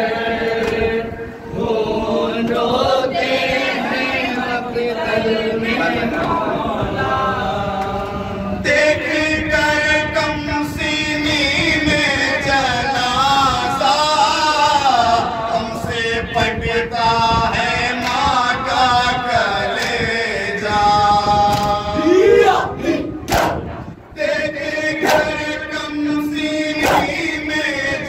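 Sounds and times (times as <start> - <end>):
men chanting a lament: 0.0 - 28.0.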